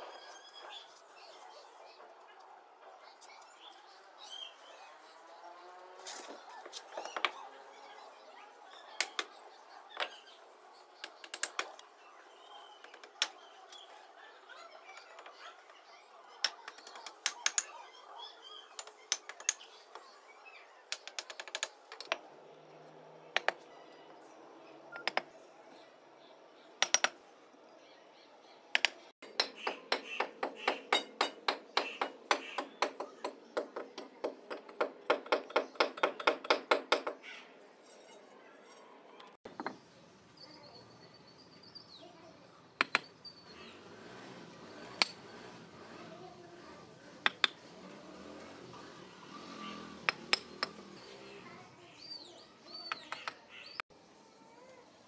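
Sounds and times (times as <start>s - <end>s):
hammer tapping on bricks: 26.8s - 27.2s, 28.8s - 37.2s, 42.8s - 43.1s, 47.2s - 47.6s.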